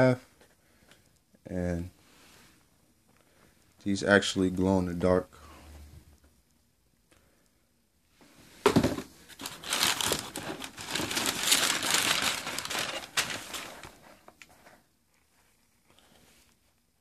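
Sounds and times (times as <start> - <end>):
tissue paper crinkling: 9.3 - 14.2.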